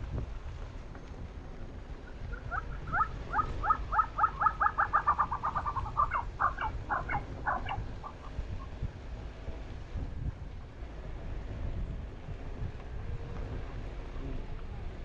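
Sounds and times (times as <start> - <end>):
bird clucking calls: 2.0 - 8.8.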